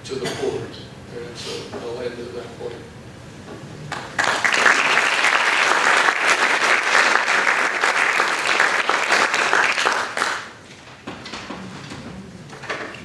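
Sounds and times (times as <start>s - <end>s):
audience applauding: 3.9s - 10.6s.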